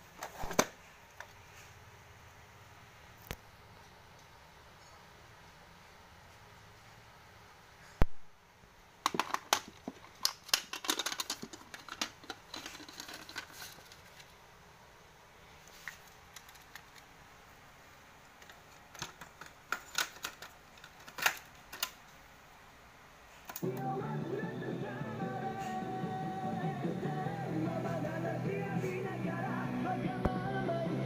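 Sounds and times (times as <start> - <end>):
cassette deck clacks: 9.0 - 13.5
cassette case clicks and rattles: 9.0 - 14.2, 18.4 - 22.0.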